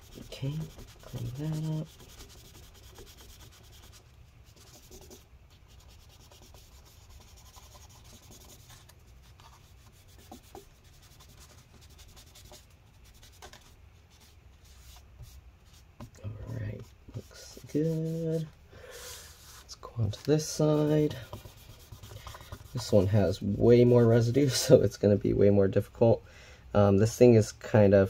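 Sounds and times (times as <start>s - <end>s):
paper towel rubbing on metal: 0.0s - 5.2s, 17.1s - 18.5s, 19.1s - 24.7s.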